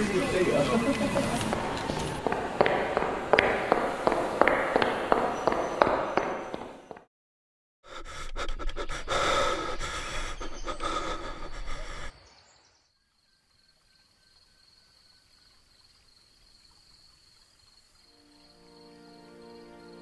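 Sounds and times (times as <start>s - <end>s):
harsh breathy rush with gasping: 7.8s - 12.2s.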